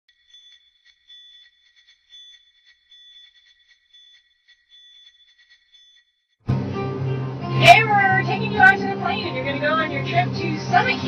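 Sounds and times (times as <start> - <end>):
small bells jingling: 0.1 - 6.4
steady high ringing: 0.1 - 6.4.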